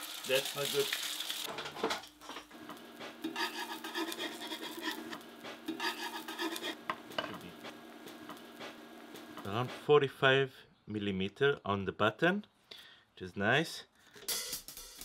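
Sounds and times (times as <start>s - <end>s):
egg sizzling: 0.0s - 9.8s
steady low hum: 2.3s - 9.9s
metal spatula scraping steel plate: 3.2s - 6.8s.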